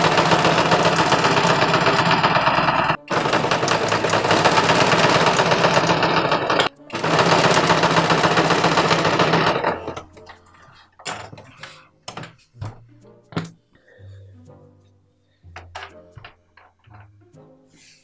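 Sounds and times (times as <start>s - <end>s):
electric sewing machine running: 0.0s - 10.0s.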